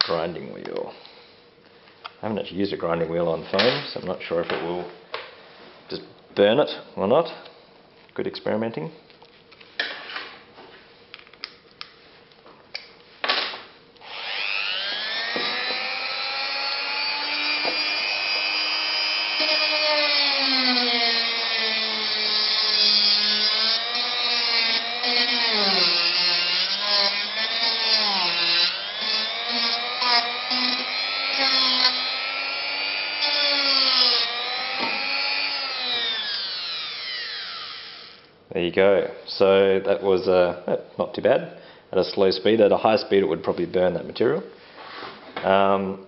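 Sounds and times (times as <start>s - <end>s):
rotary tool motor whining: 14.0s - 38.2s.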